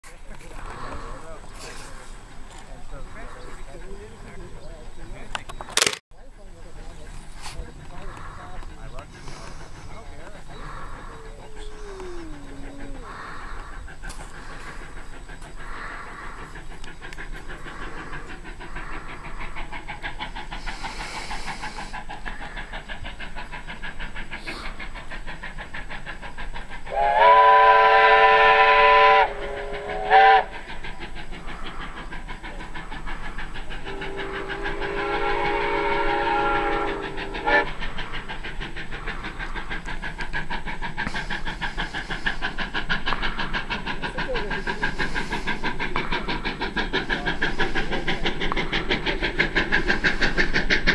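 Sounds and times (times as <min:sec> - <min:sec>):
steam locomotive exhaust chuffing: 0:00.0 - 0:50.9
lower-pitched train whistle: 0:26.9 - 0:30.5, 0:33.8 - 0:37.7.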